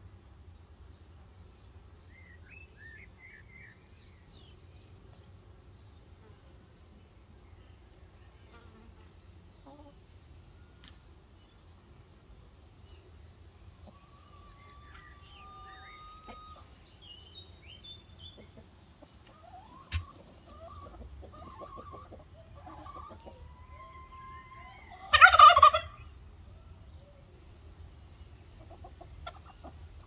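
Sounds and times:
turkey gobbling: 13.8 - 16.7, 19.3 - 26.1, 28.6 - 29.8.

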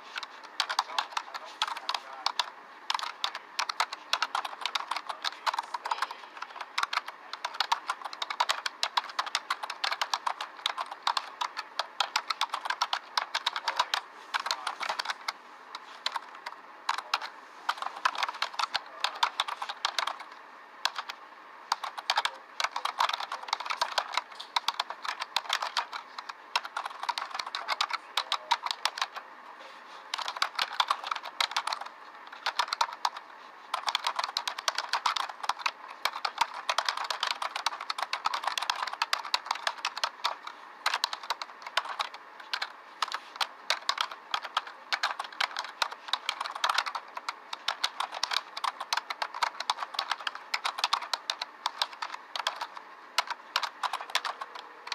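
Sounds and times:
keyboard key clicks: 33.8 - 54.9.

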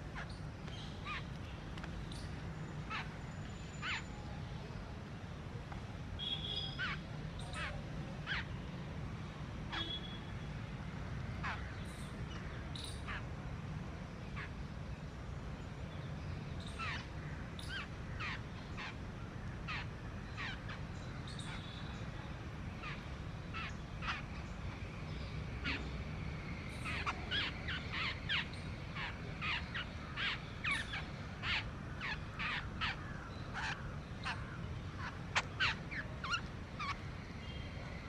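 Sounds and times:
small birds chirping: 0.0 - 4.4, 6.2 - 8.7, 11.4 - 13.3, 14.3 - 19.0, 19.6 - 38.0
squirrels chirping: 26.7 - 37.6.

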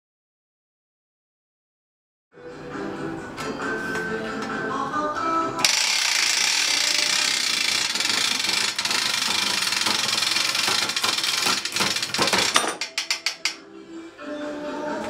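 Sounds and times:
ratchet clicking rapidly: 5.6 - 13.6.

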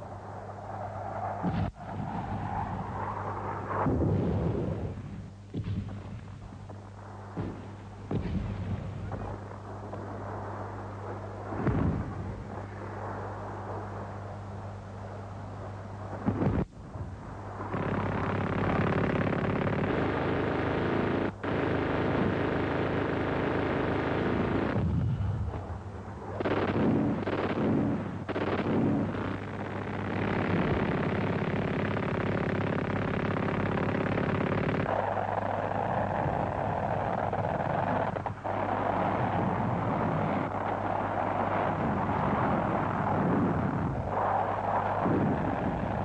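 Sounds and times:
steady low hum: 0.0 - 46.0
explosions: 1.3 - 12.8, 16.1 - 20.6, 23.9 - 32.3, 33.3 - 46.0
gunfire: 3.8 - 12.8, 16.2 - 43.4.

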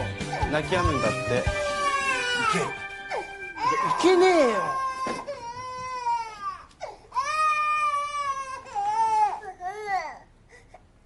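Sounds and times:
infant crying: 0.2 - 10.3.

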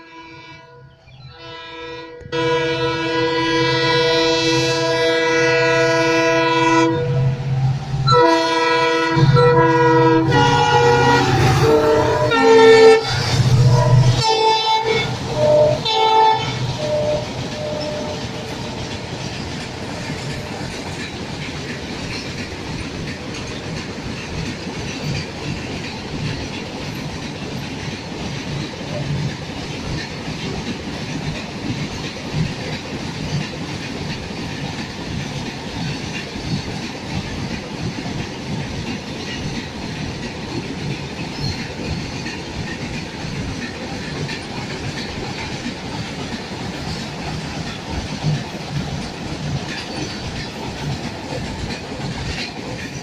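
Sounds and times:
train horn: 0.0 - 20.6
train wheels clattering: 8.0 - 53.0.

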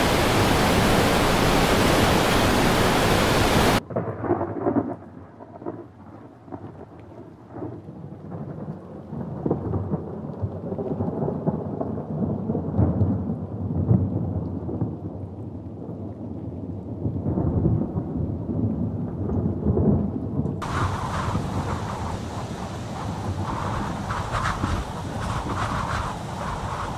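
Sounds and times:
steady hiss: 0.0 - 3.8, 20.6 - 26.9
thunder rumbling: 0.0 - 6.9, 16.7 - 26.9.

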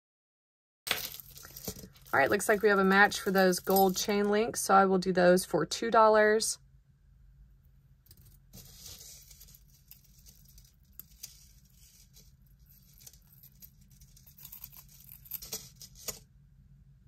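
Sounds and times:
jewelry rustling and clicking: 0.9 - 4.3, 8.0 - 16.2
steady low hum: 1.2 - 17.0.

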